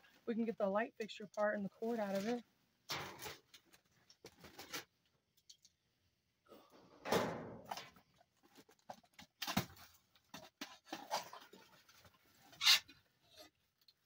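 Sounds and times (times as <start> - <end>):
styrofoam and plastic bags rustling: 1.1 - 5.0.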